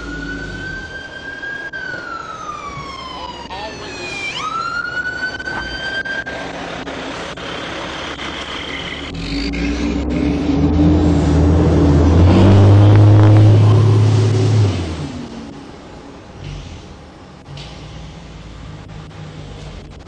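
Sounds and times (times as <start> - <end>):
siren wailing: 0.0 - 15.2
fire engine engine rumbling: 0.0 - 20.0.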